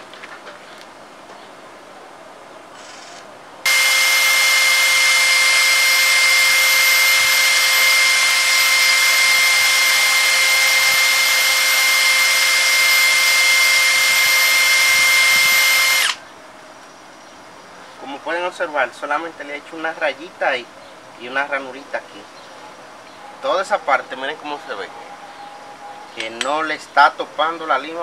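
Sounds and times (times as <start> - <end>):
cordless drill motor whine: 3.7 - 16.2.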